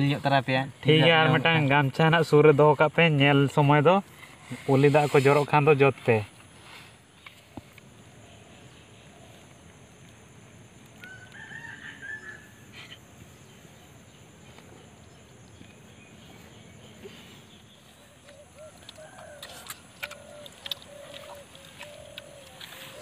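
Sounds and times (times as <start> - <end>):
faint rooster crowing: 11.0 - 12.8, 18.0 - 23.0.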